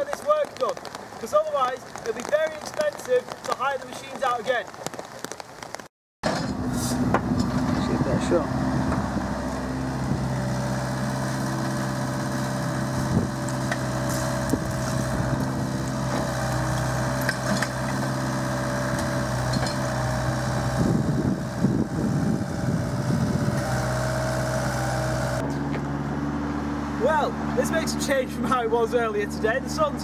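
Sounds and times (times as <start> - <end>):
diesel engines idling: 6.3 - 30.0.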